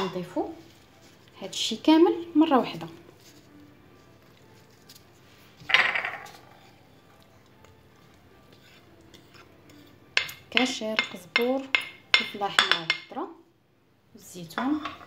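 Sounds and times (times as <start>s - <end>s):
wooden spatula scraping a plate: 5.4s - 7.4s, 8.0s - 10.3s.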